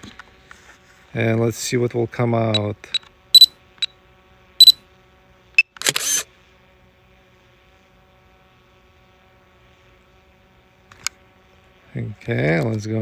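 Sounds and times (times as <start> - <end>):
faint steady background noise: 0.0 - 13.0
camera shutter click: 5.7 - 6.3.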